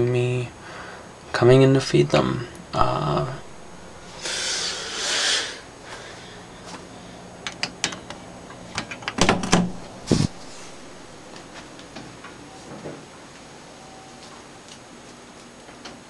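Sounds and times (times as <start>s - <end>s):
airy hiss: 2.9s - 6.6s, 9.8s - 11.7s.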